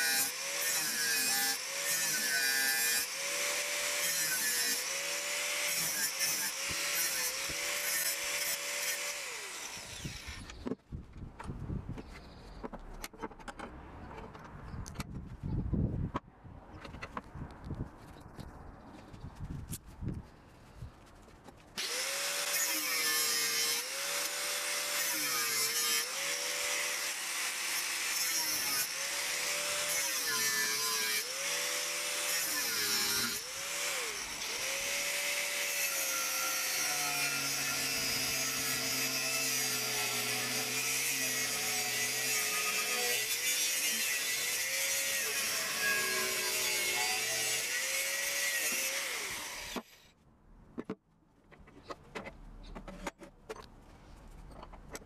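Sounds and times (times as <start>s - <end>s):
angle grinder cutting steel: 0.0s - 10.7s, 21.8s - 50.1s.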